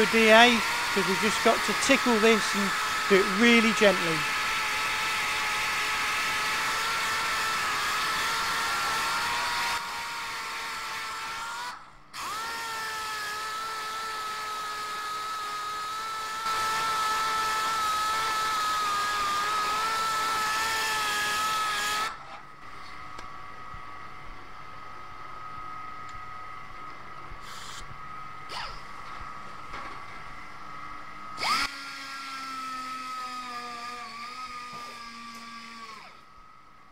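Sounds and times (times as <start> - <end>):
sander whining on metal: 0.0 - 22.9, 31.3 - 36.3.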